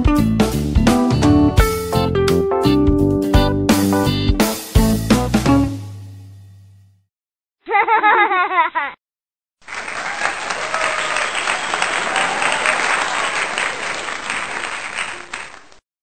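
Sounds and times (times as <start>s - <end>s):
crowd applause: 9.6s - 15.8s.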